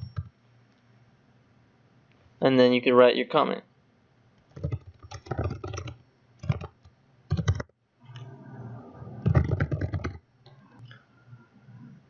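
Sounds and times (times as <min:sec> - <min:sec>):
typing on keyboard: 0:04.5 - 0:07.7, 0:09.2 - 0:10.2.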